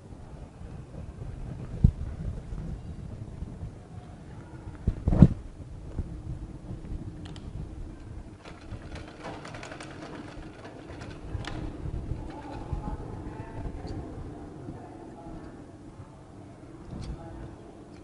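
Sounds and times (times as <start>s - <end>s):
sewing machine stitching: 8.4s - 11.7s.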